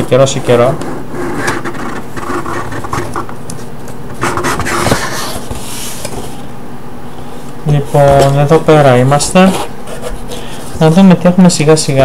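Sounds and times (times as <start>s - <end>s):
cardboard flaps scraping: 4.2s - 6.4s.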